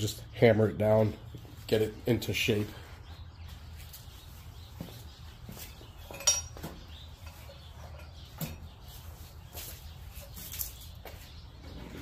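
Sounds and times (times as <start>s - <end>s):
metal tools clinking: 6.0s - 8.6s
sharp ringing metal clink: 6.1s - 6.6s.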